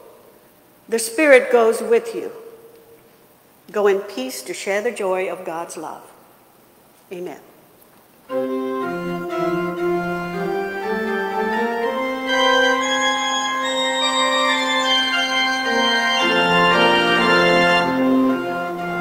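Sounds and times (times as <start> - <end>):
organ playing held chords: 8.3 - 19.0.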